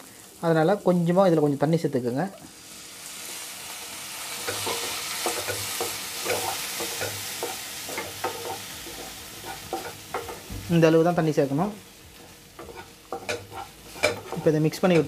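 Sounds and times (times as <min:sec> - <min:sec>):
masala sizzling in pan: 0:00.0 - 0:15.0
wooden spatula scraping pan: 0:04.5 - 0:10.7, 0:12.2 - 0:15.0.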